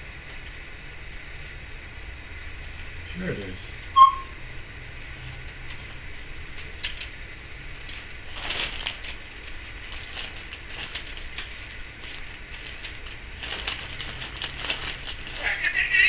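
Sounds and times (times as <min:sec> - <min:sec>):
parrot clicking and crackling: 0:07.8 - 0:15.4.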